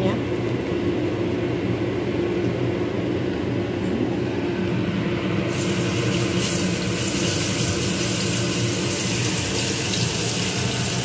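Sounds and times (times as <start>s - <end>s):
steady low hum with held tones: 0.0s - 11.0s
spice paste sizzling in hot oil: 5.5s - 11.0s.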